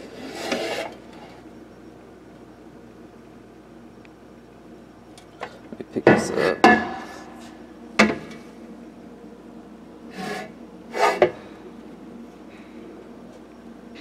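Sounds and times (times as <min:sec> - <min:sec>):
metal pipe scraping: 0:00.0 - 0:01.3, 0:10.1 - 0:11.3.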